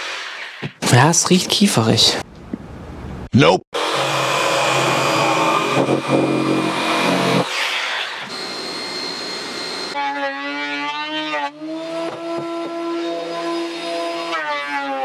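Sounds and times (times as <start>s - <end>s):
planer motor running: 3.8s - 7.6s
jigsaw cutting wood: 3.8s - 15.0s.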